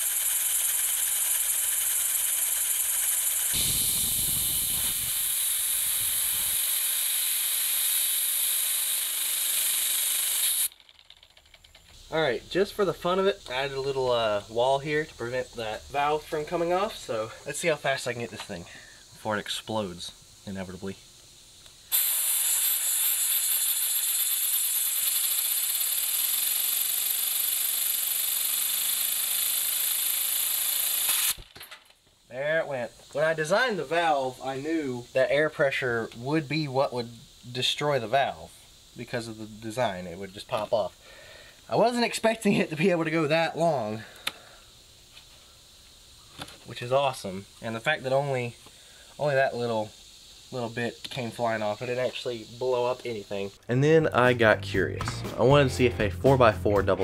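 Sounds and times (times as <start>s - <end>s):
fine rapid engine rattle: 0.0s - 3.6s
compressed air hissing: 0.0s - 10.7s, 18.4s - 31.6s, 32.2s - 42.3s, 43.2s - 53.6s.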